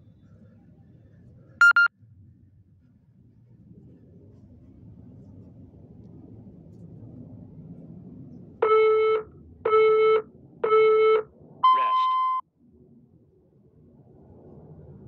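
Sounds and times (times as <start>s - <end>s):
long high timer beep: 1.6s - 1.9s, 8.6s - 12.4s
short timer beeps: 1.6s - 1.9s, 8.6s - 12.4s.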